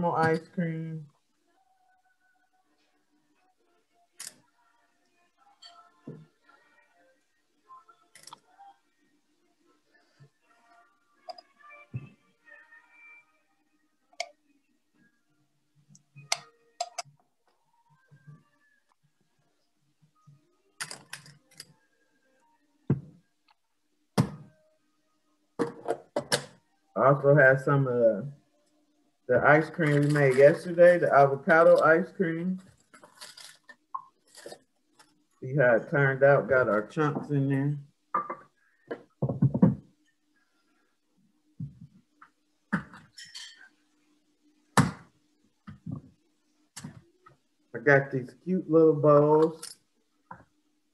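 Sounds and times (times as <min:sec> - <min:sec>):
foil crinkling: 0:32.7 - 0:34.6.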